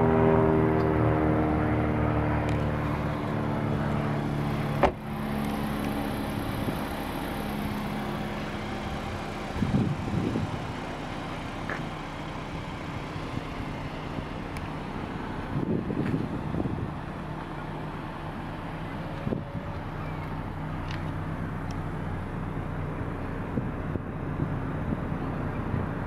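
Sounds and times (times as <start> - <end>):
car engine hum: 0.0 - 26.0
car door shutting: 4.7 - 5.1.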